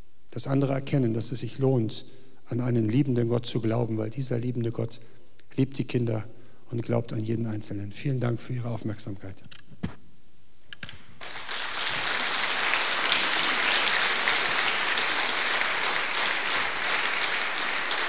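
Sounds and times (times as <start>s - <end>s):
audience applauding: 11.2s - 18.0s.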